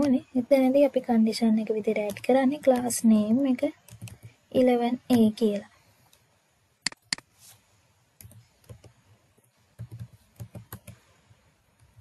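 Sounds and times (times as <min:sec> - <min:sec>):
typing on computer keyboard: 0:02.0 - 0:03.0, 0:03.8 - 0:04.4, 0:08.2 - 0:09.0, 0:09.8 - 0:11.0.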